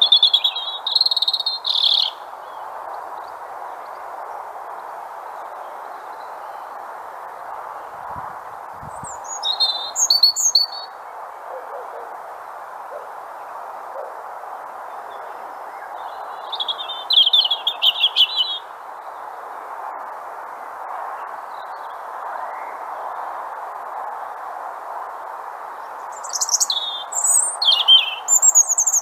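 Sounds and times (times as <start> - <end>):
robin singing: 0.0 - 4.0, 8.8 - 12.1, 14.9 - 19.3, 25.8 - 29.0
steady background noise: 0.0 - 29.0.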